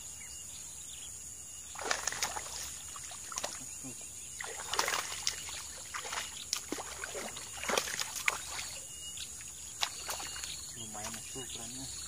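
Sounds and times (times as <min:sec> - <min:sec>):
fish splashing in water: 0:01.7 - 0:03.7, 0:04.3 - 0:08.9, 0:09.7 - 0:11.2.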